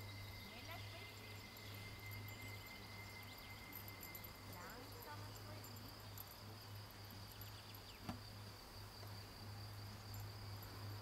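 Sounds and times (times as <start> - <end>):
crickets chirring: 0.0 - 11.0
low hum: 0.0 - 11.0.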